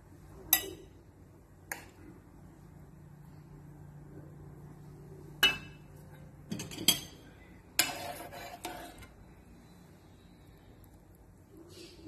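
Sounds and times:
metal utensils clinking on dishes: 0:06.5 - 0:07.2.

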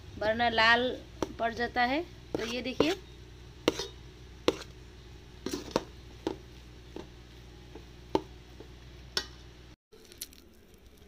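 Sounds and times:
low steady hum: 0:00.0 - 0:11.0
spatula scraping a pan: 0:02.3 - 0:04.8, 0:05.4 - 0:06.0.

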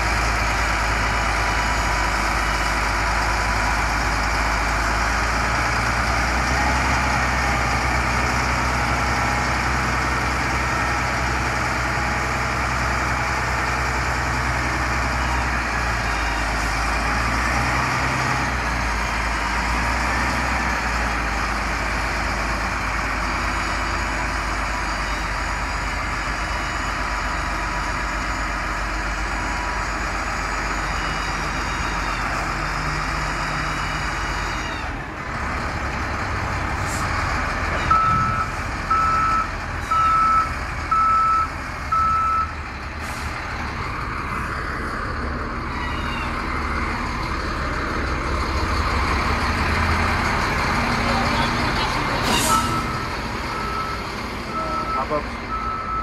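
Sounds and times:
diesel engine running: 0:00.0 - 0:56.0
reverse alarm beeping: 0:37.8 - 0:42.5, 0:52.5 - 0:56.0.

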